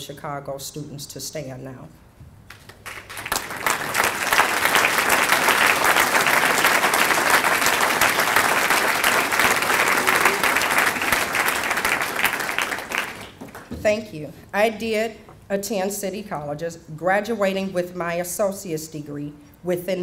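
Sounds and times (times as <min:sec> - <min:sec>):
audience applauding: 0:02.5 - 0:13.7.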